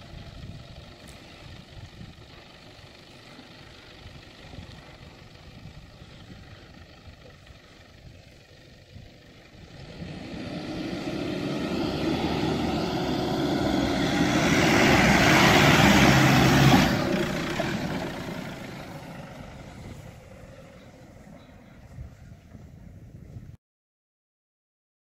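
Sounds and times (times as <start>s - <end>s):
engine working under load: 0.0s - 23.2s
tyres churning sand: 9.6s - 22.4s.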